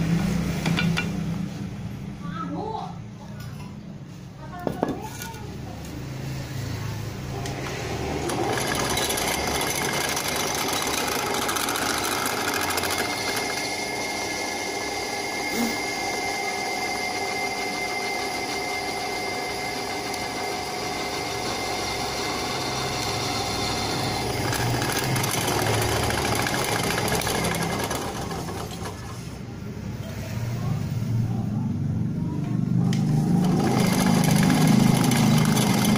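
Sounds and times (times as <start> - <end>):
drill press whining: 7.3 - 29.4, 32.9 - 35.9.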